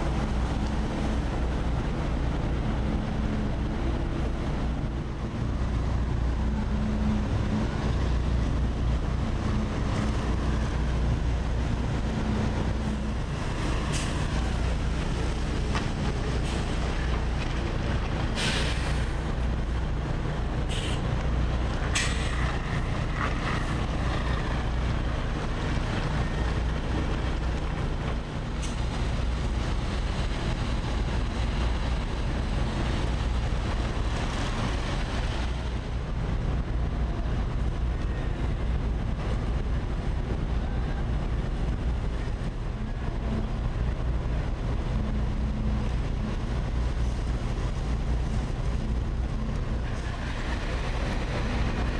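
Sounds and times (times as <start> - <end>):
diesel truck engines idling: 0.0 - 51.9
air brake hisses: 18.4 - 19.1, 20.7 - 21.0.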